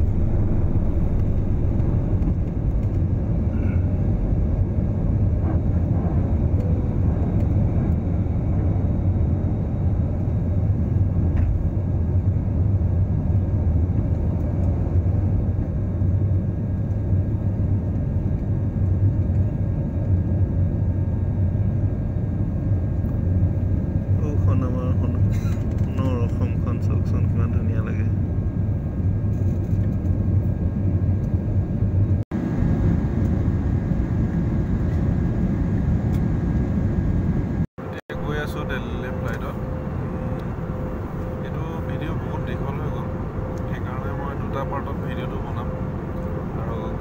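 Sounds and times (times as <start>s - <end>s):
jet engines rumbling: 0.0s - 47.0s.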